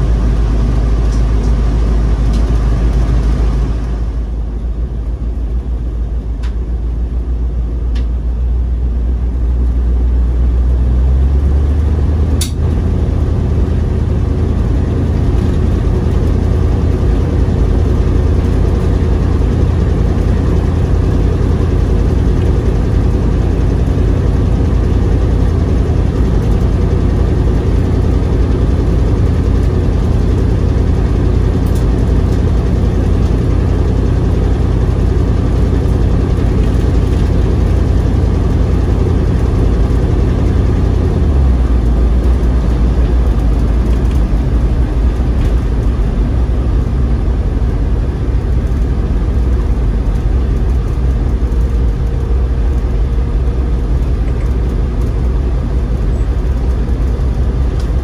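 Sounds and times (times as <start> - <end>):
car engine and road noise: 0.0 - 58.0
sharp click: 12.4 - 12.6.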